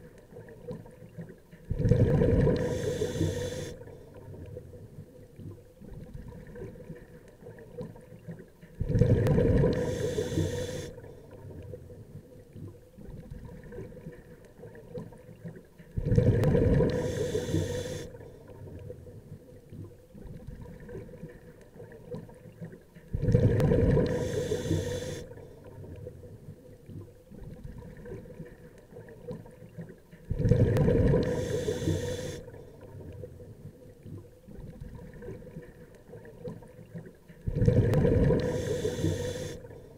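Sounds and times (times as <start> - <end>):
diver exhaling bubbles: 1.7 - 3.8, 8.8 - 10.9, 16.0 - 18.1, 23.2 - 25.2, 30.3 - 32.4, 37.5 - 39.7.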